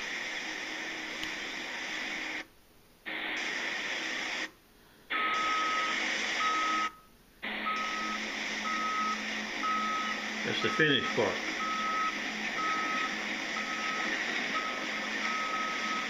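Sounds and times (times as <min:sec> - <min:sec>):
heavy machinery engine hum: 0:05.2 - 0:16.0
reversing alarm beeps: 0:05.2 - 0:16.0.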